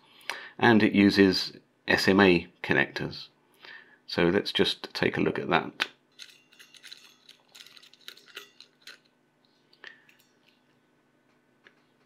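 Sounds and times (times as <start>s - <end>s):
small metallic clinks: 6.1s - 9.1s, 9.8s - 10.8s.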